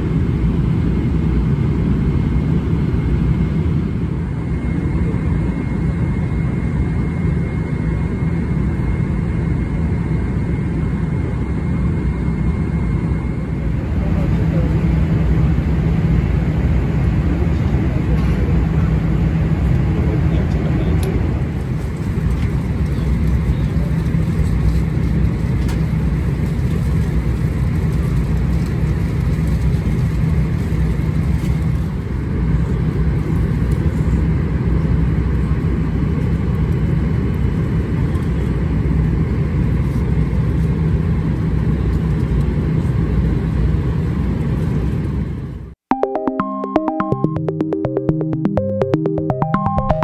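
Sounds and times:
airplane cabin rumble: 10.3 - 34.7.

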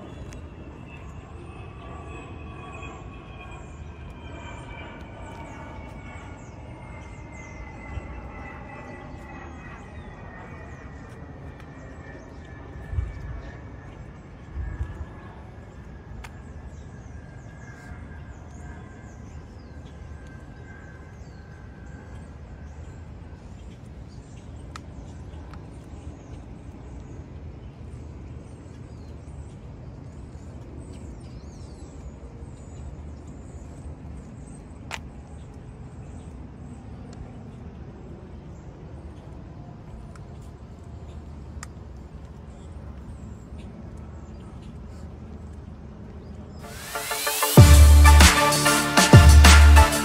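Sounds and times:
birds chirping: 0.0 - 27.0
steady low rumble: 0.0 - 31.3.

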